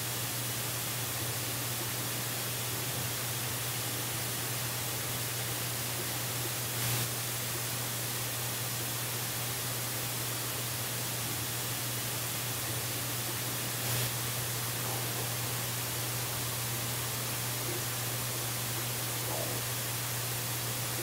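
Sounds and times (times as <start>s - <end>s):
constant low hum: 9.7s - 21.0s.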